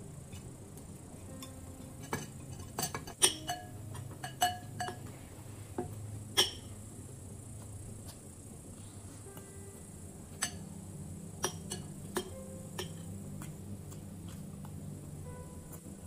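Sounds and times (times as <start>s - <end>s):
spoon clinking on glass bowl: 1.4s - 5.1s, 11.4s - 13.1s.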